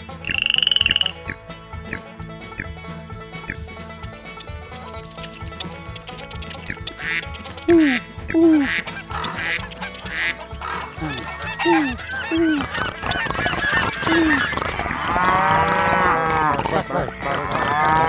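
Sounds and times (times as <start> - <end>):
background music: 0.0 - 18.0
bird squawks and chirps: 0.2 - 1.4
cow mooing: 15.0 - 16.7, 17.3 - 18.0.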